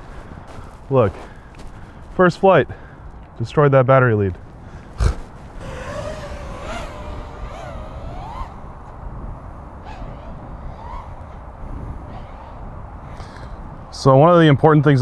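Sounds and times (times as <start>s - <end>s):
wind rumble on microphone: 4.4s - 15.0s
quadcopter motors whining: 5.4s - 13.2s.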